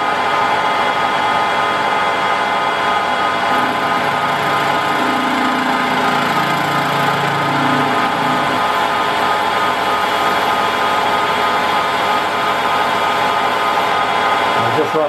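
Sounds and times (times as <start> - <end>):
lathe tool cutting metal: 0.0 - 15.0
metal lathe whining: 0.0 - 15.0.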